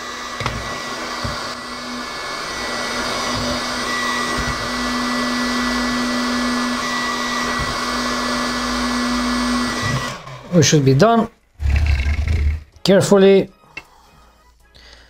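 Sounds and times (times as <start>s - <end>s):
heat gun blowing air: 0.0s - 10.6s.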